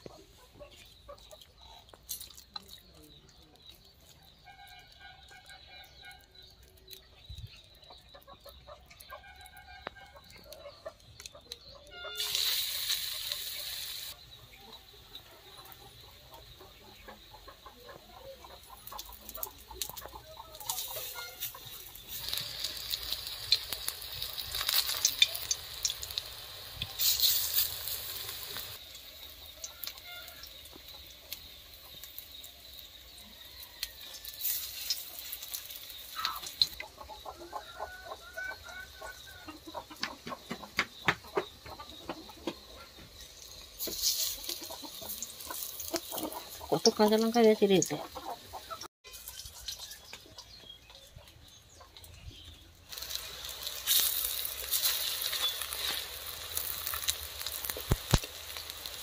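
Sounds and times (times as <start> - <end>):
batter sizzling in hot oil: 10.2 - 14.3, 14.9 - 40.0, 40.9 - 50.6, 51.5 - 59.0.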